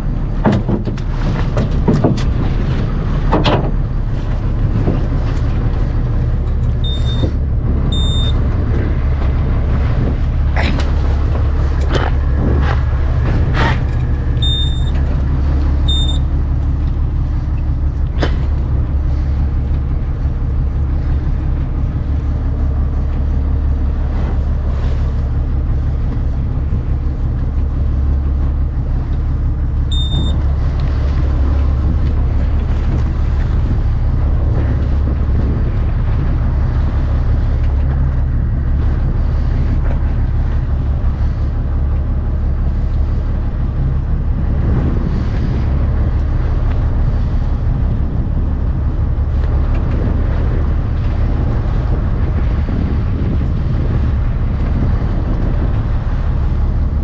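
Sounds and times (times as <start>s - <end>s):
boat engine droning: 0.0s - 57.0s
short electronic beeps: 6.8s - 8.4s, 14.4s - 15.0s, 15.9s - 16.3s, 29.9s - 30.4s.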